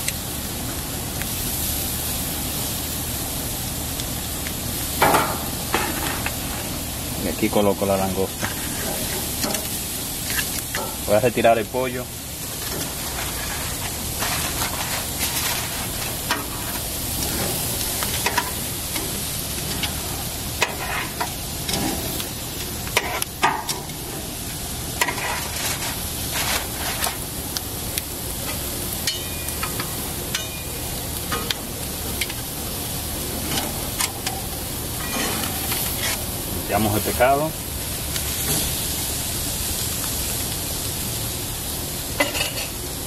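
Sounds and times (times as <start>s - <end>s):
seafood sizzling on a grill: 0.0s - 43.0s
metal tongs clicking on grate: 32.2s - 32.4s.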